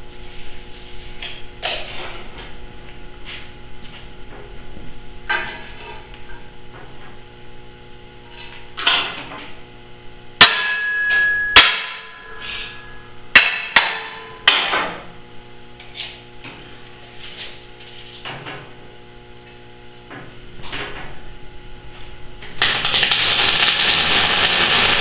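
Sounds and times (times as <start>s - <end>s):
steady shop hum: 0.0s - 25.0s
high metallic ringing: 10.4s - 14.7s.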